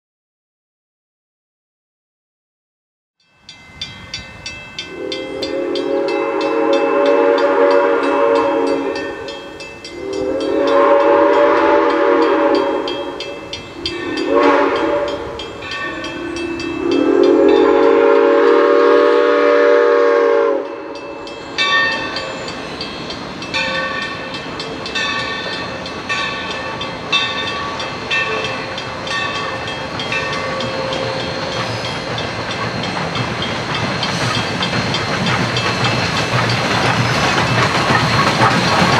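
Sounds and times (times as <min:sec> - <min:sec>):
bell ringing: 0:03.2 - 0:11.4, 0:12.6 - 0:17.8, 0:20.7 - 0:36.7
steam locomotive whistle: 0:04.8 - 0:32.3.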